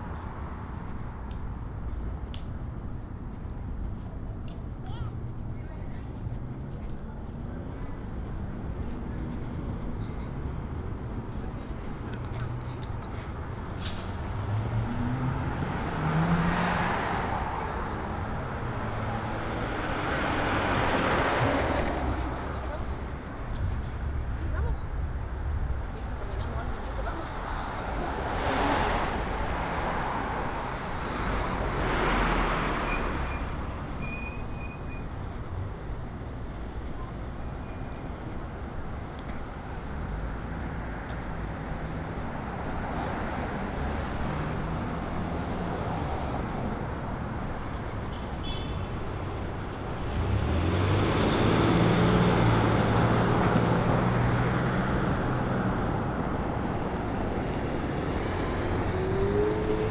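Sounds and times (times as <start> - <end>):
road noise from cars: 0.0 - 59.9
louder vehicle passing: 13.8 - 22.9, 49.9 - 59.9.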